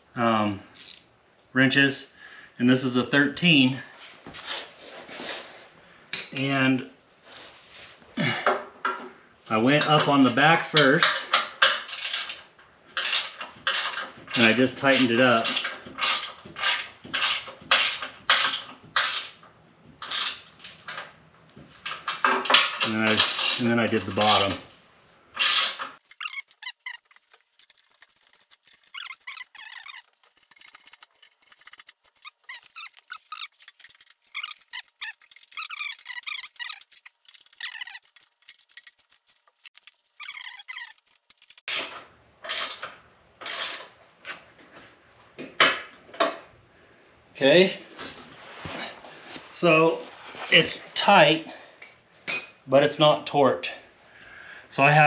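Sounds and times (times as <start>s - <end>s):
ratcheting wrench rasps: 0.8s - 1.1s, 10.8s - 19.4s, 25.4s - 43.9s
high wavering squeaks: 25.5s - 41.7s
metallic tool clanks: 51.8s - 52.6s.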